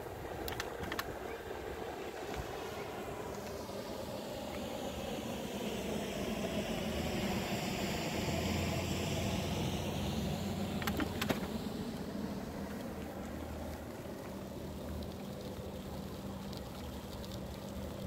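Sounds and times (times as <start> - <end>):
bicycle rolling and wind noise: 0.0 - 18.0
low engine hum: 0.0 - 18.0
sharp clicks: 0.4 - 1.2.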